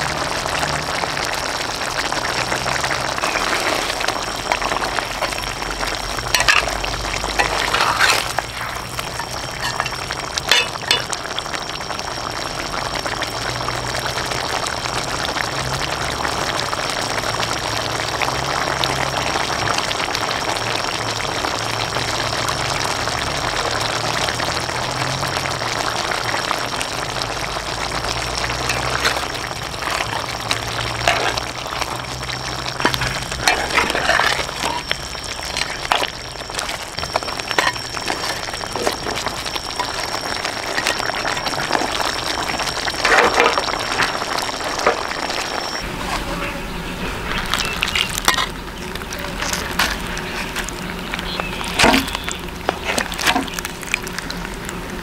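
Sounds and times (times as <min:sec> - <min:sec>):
ribs bubbling and sizzling in sauce: 0:00.0 - 0:55.0.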